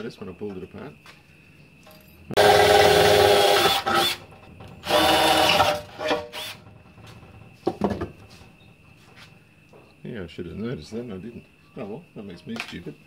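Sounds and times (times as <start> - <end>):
cordless drill drilling metal: 2.4 - 4.2, 4.8 - 6.6.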